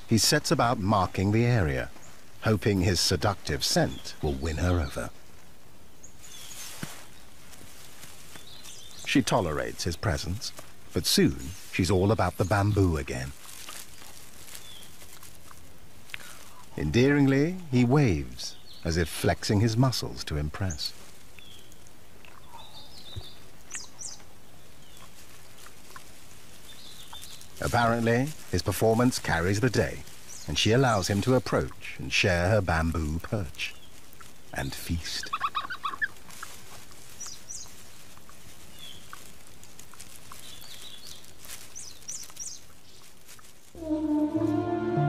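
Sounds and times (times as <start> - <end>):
outdoor ambience: 0.0 - 45.0
rustling of leaves: 0.0 - 45.0
steady forest hiss: 0.0 - 45.0
small crunching ticks: 6.1 - 17.9, 20.6 - 43.8
music: 43.8 - 45.0.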